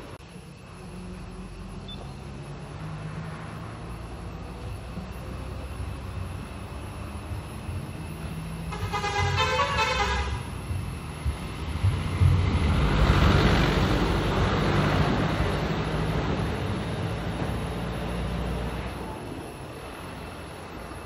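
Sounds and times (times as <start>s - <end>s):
vehicle passing on road: 0.0s - 21.0s
vehicle horn: 8.7s - 10.5s.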